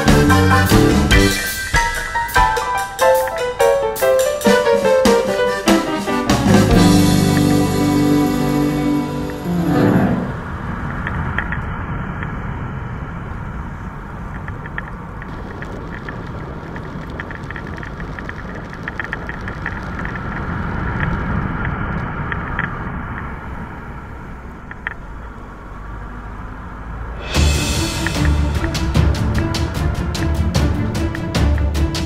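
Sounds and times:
loud music: 0:00.0 - 0:10.4, 0:27.2 - 0:32.0
wind and road noise: 0:06.9 - 0:32.0
faint ticks: 0:14.3 - 0:23.3.

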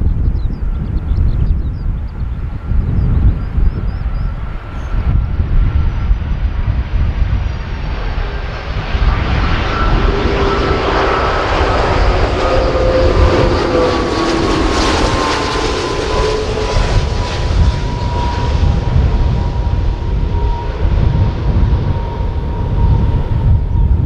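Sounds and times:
jet engine whine: 0:00.0 - 0:24.0
jet roar overhead: 0:00.0 - 0:24.0.

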